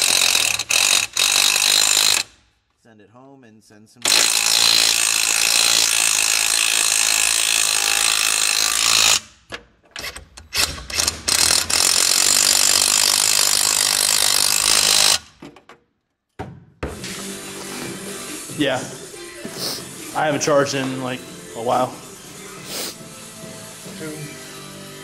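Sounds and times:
impact wrench driving bolt: 8.9 - 15.8.

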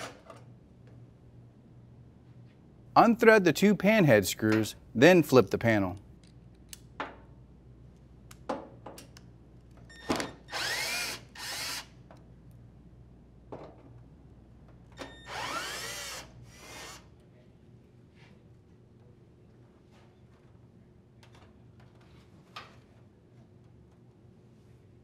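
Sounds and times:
cordless drill whining: 10.5 - 11.9, 15.1 - 17.0.

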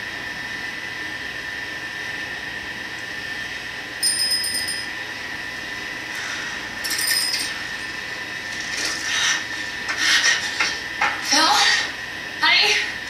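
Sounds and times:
bicycle bell trills: 4.0 - 5.0, 6.8 - 7.6.

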